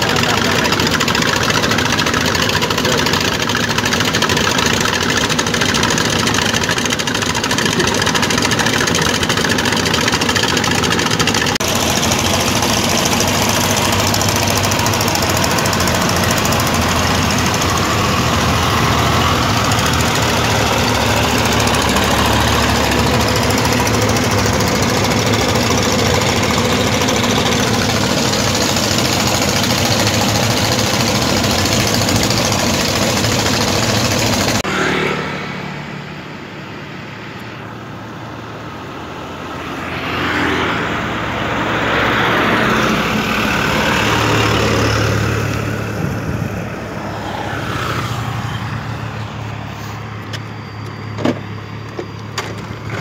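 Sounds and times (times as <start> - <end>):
diesel truck engines idling: 0.0 - 34.7, 40.8 - 53.0
deeper engine note: 0.0 - 37.9.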